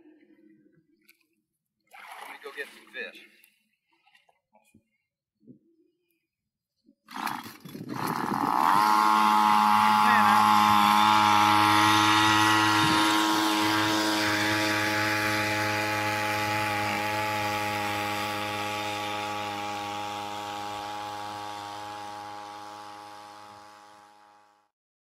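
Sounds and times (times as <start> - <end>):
outboard motor buzzing drone: 7.1 - 24.7.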